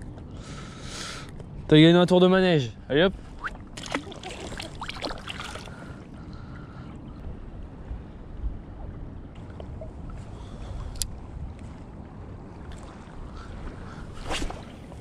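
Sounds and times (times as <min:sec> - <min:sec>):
wind rumbling on microphone: 0:03.0 - 0:15.0
small waves lapping: 0:03.1 - 0:15.0
fish splashing in water: 0:03.4 - 0:05.9.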